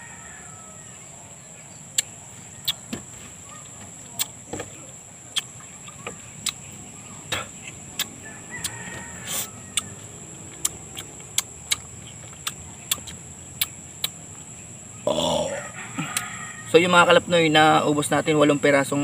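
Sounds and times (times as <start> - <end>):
high insect drone: 0.0 - 19.0
wet mouth smacks and clicks: 2.0 - 2.8, 9.7 - 9.9, 10.6 - 14.2.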